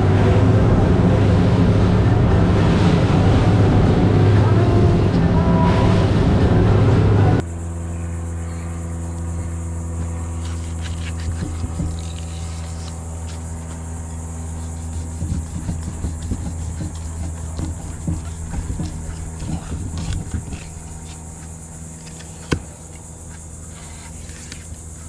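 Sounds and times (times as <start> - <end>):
rushing water: 0.0 - 7.4
boat engine: 0.0 - 25.0
steady low hum: 0.0 - 25.0
knife cutting fish: 10.3 - 22.7.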